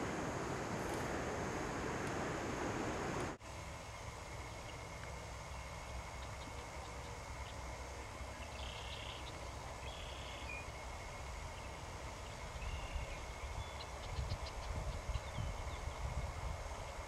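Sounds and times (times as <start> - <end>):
high buzzy bird calls: 0.0 - 16.2
bird chirps: 8.4 - 10.8.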